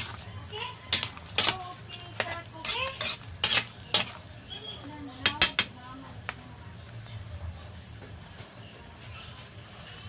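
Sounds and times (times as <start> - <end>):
metal ladle clinking against pan: 5.2 - 5.7.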